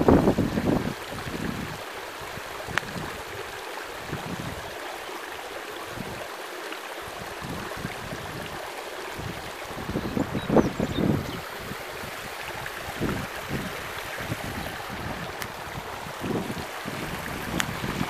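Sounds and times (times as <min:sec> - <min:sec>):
wind buffets on microphone: 0:00.0 - 0:04.8, 0:05.8 - 0:06.2, 0:07.0 - 0:18.0
rushing hiss of open air: 0:11.0 - 0:18.0.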